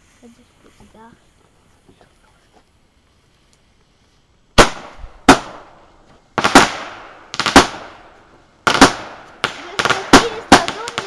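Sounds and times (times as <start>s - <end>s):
firework bangs: 4.5s - 11.0s
rapid firework cracks: 4.5s - 11.0s.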